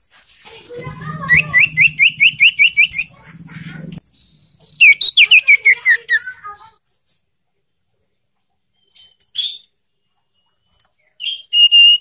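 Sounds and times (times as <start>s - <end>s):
bird whistling: 1.2s - 3.1s, 4.7s - 6.4s, 11.2s - 12.0s.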